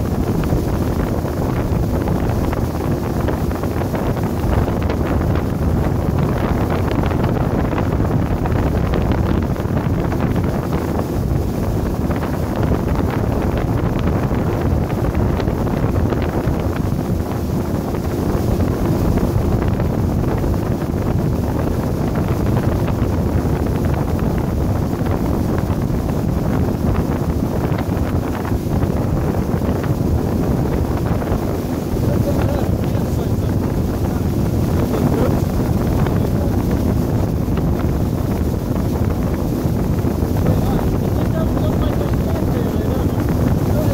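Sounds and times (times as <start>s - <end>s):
boat motor droning: 0.0s - 43.9s
wind buffeting microphone: 0.0s - 43.9s.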